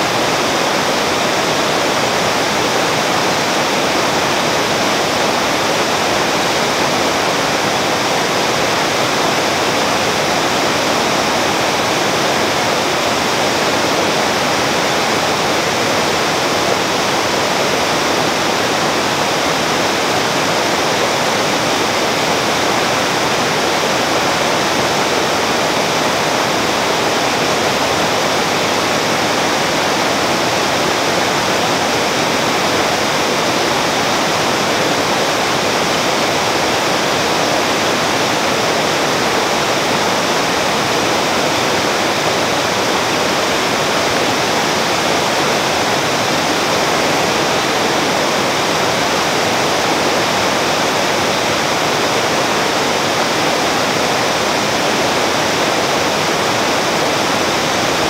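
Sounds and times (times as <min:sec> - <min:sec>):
waterfalls rushing over rocks: 0:00.0 - 0:58.0.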